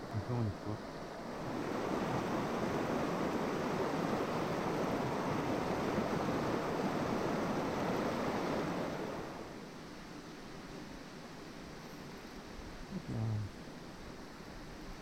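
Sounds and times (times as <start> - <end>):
river current rushing: 0.5 - 9.8.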